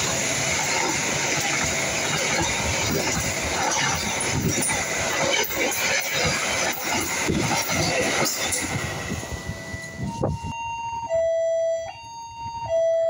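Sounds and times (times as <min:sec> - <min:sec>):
train wheel clatter: 0:00.0 - 0:09.4
train rushing past: 0:00.0 - 0:10.4.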